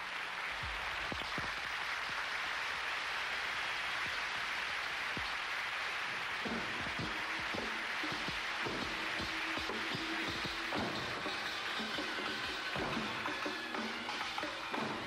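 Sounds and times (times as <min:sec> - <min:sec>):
drum strikes: 0:06.4 - 0:15.0.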